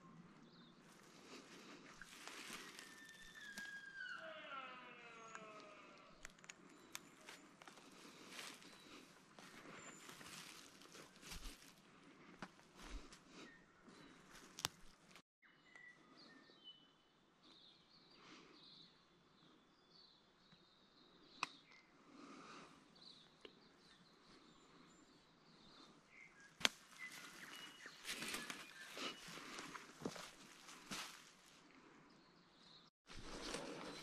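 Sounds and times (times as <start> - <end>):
footsteps crunching through leaves: 2.0 - 3.4, 7.2 - 11.8, 26.6 - 31.5
faint bird chirps: 2.1 - 7.5, 23.0 - 30.3
twig snaps: 14.3 - 15.0, 26.6 - 27.4.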